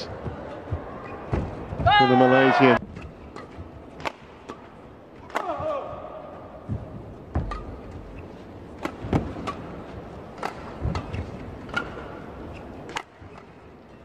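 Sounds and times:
arena hall noise: 0:00.0 - 0:14.0
rackets striking shuttlecock: 0:03.0 - 0:05.9, 0:07.3 - 0:13.6.

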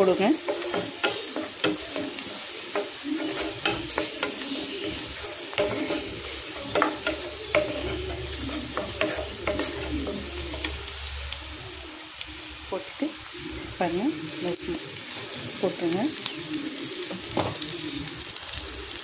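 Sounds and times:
spatula scraping pan: 0:00.0 - 0:11.3
onions sizzling in oil: 0:00.0 - 0:19.0.

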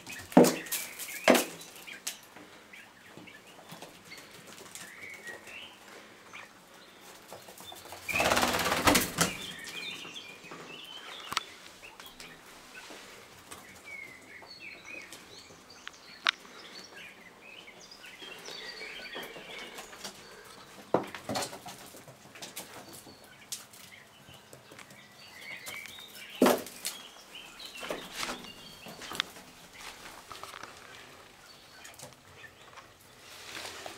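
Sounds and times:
sharp knocks and rustles: 0:00.0 - 0:02.5, 0:19.1 - 0:31.2
quails chirping: 0:00.0 - 0:33.9.

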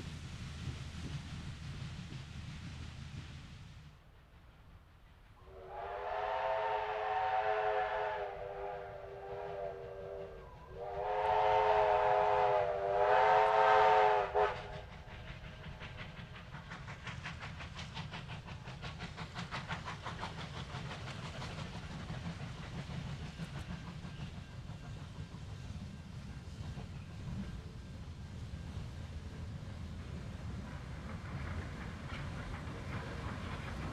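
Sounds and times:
steam locomotive exhaust beats: 0:00.0 - 0:33.9
steam locomotive whistle: 0:05.4 - 0:14.9.

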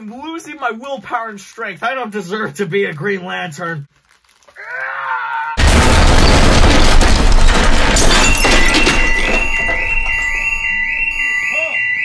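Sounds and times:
loud explosion boom: 0:05.6 - 0:10.4
building alarm beeping: 0:08.1 - 0:12.0.

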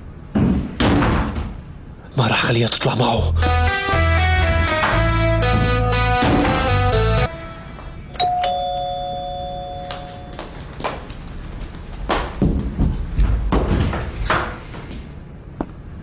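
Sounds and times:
two-tone doorbell chime: 0:08.1 - 0:10.4
quick footsteps on wooden floor: 0:10.4 - 0:15.0.

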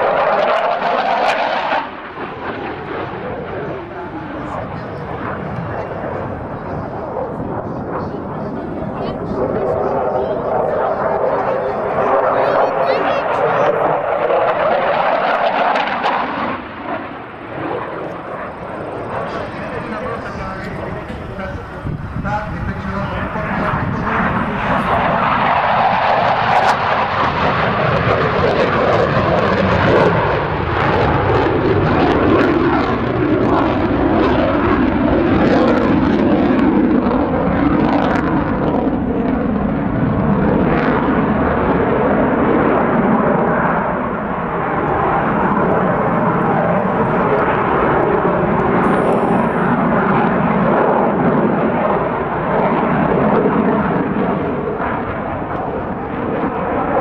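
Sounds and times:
jet engines roaring: 0:00.0 - 0:57.0.

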